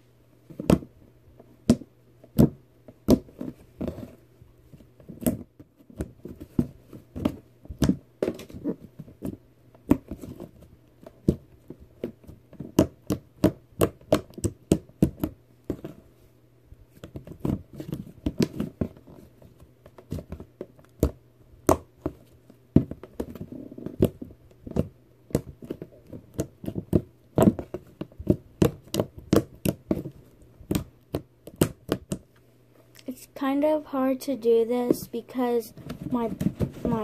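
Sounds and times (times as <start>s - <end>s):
fan humming: 32.2s - 37.0s.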